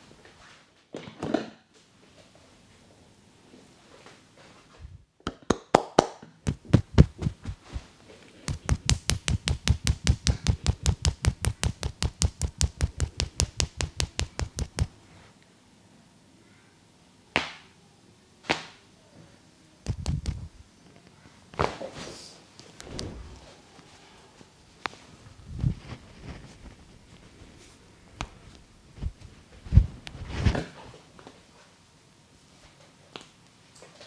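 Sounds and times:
hands tapping in massage: 5.3s - 15.0s, 19.8s - 20.6s.

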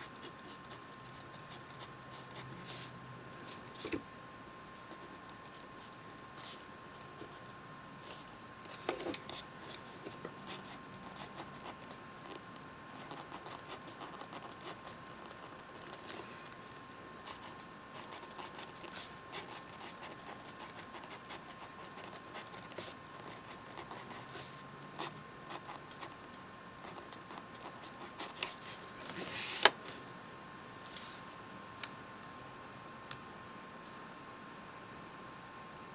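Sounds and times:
pen scratching on paper: 10.4s - 16.2s, 17.2s - 29.4s.

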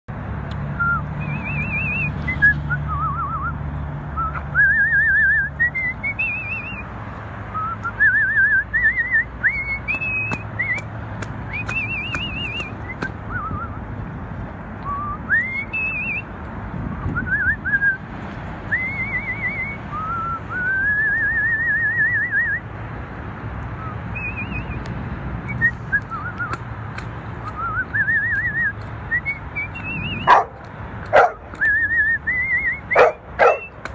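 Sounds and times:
person whistling a melody: 0.8s - 3.6s, 4.2s - 6.9s, 7.5s - 10.9s, 11.5s - 13.8s, 14.8s - 16.3s, 17.0s - 18.1s, 18.7s - 22.7s, 23.8s - 24.8s, 25.4s - 26.6s, 27.4s - 30.3s, 31.6s - 33.8s.

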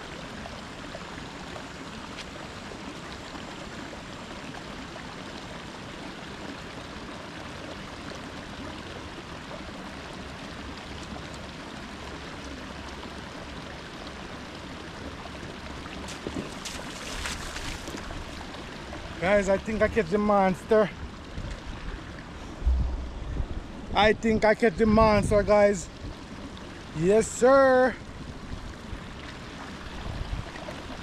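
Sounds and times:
flowing water rushing: 0.0s - 31.0s.

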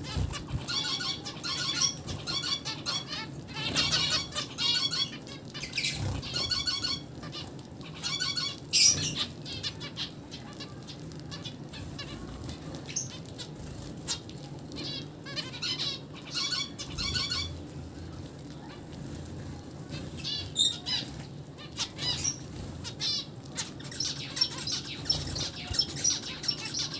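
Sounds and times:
finches calling: 0.0s - 7.0s, 14.8s - 17.5s, 20.1s - 26.9s
wing flutters: 0.0s - 7.6s.

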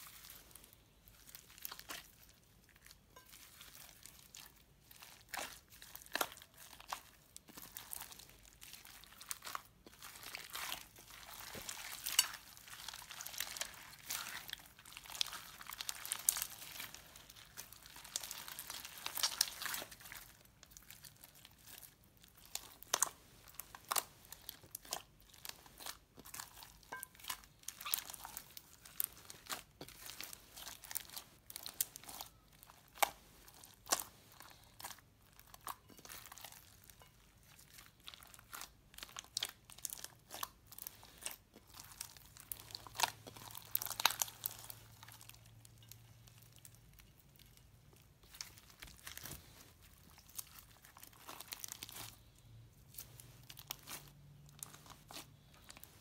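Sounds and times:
slime crackling and popping: 0.0s - 56.0s.

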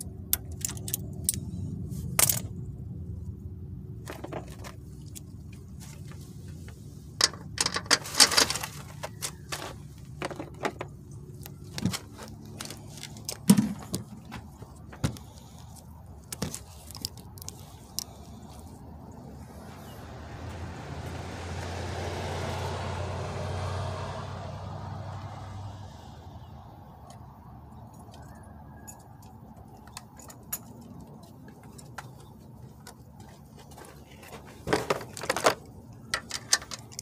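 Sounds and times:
hand tools clinking: 7.2s - 10.9s.

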